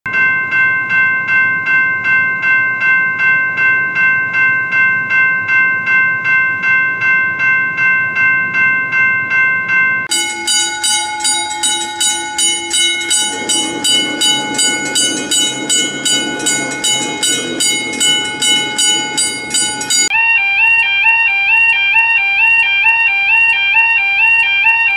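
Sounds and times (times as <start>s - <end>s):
railroad crossing bell ringing: 0.1s - 24.9s
rushing rumble: 10.1s - 20.1s.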